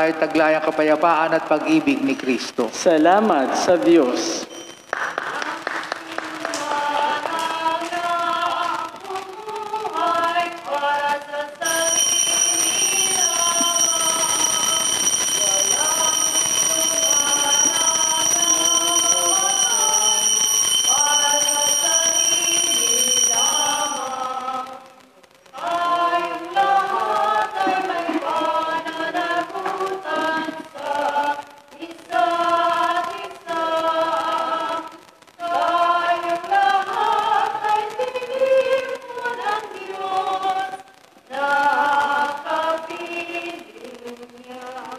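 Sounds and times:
steady high ringing tone: 0:04.0 - 0:05.0, 0:11.6 - 0:24.8
choir singing a hymn: 0:06.4 - 0:24.8, 0:25.6 - 0:44.9.

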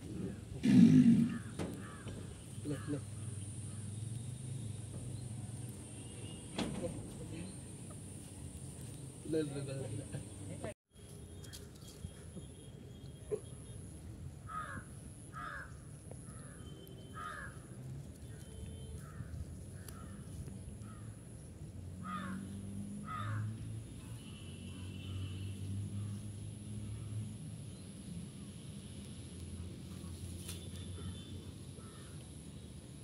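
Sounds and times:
crow cawing: 0:01.2 - 0:03.9, 0:14.5 - 0:17.7, 0:22.0 - 0:23.6, 0:31.0 - 0:32.2.

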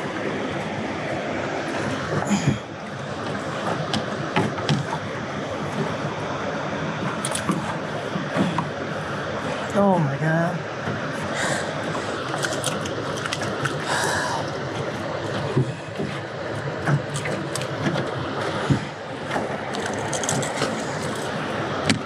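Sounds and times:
water rushing through spillway: 0:00.0 - 0:22.0
gear clicking and knocking in boat: 0:01.7 - 0:06.1, 0:07.0 - 0:08.8, 0:11.8 - 0:22.0.

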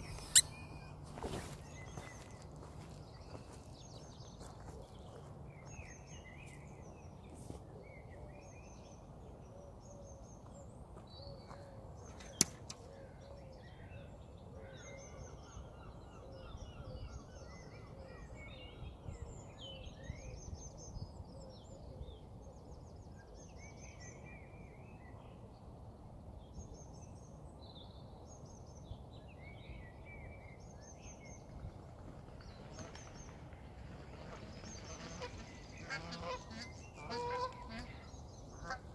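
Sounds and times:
small birds chirping: 0:00.0 - 0:08.1.

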